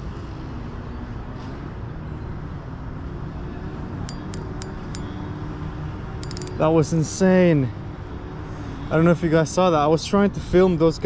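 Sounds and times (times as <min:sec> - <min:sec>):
sharp high clinks: 0:04.1 - 0:05.2, 0:06.2 - 0:06.9.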